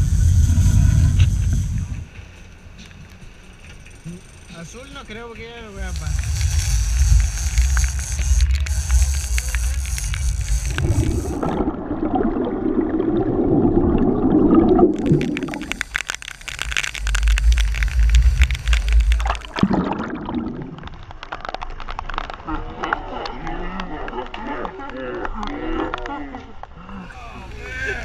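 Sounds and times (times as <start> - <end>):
wind noise on microphone: 0.0 - 2.2
boat engine rumble: 0.0 - 21.2, 26.0 - 28.0
wake water rushing and splashing: 5.7 - 21.6
underwater gurgling and bubbling: 5.8 - 23.4.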